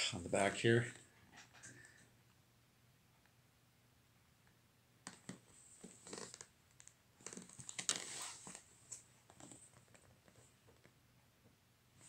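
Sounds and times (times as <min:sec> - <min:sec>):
card sleeve rustling and scraping: 0:07.3 - 0:08.7.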